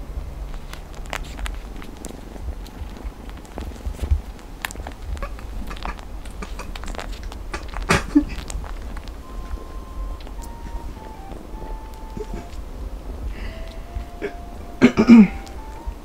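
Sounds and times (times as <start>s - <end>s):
soft clicks and rustling: 0.3s - 16.0s
music tone: 8.4s - 16.0s
low cat call: 9.1s - 16.0s.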